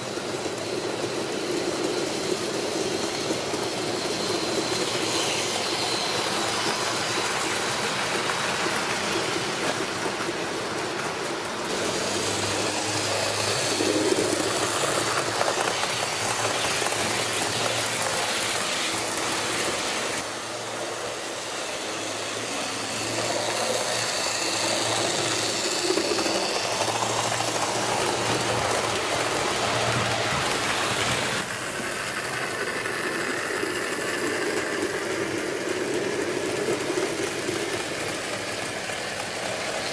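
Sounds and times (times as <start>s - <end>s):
train wheels rolling on track: 0.0s - 39.9s
small electric motor humming: 11.5s - 31.5s.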